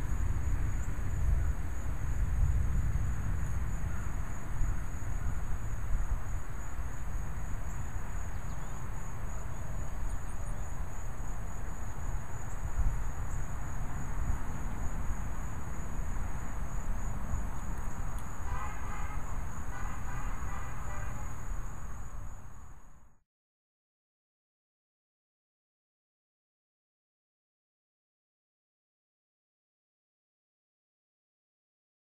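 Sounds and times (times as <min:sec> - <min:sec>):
insects trilling: 0:00.0 - 0:23.0
wind rumble on microphone: 0:00.0 - 0:23.1.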